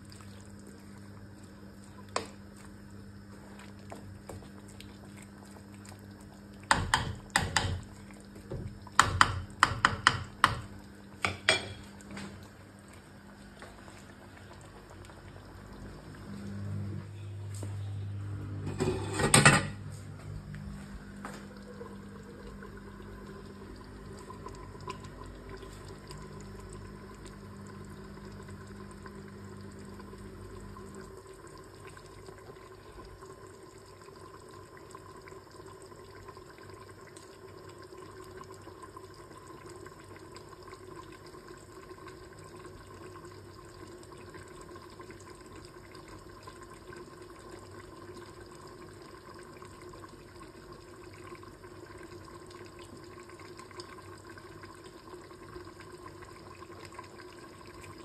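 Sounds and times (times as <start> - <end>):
sauce bubbling in covered wok: 21.0 - 58.0.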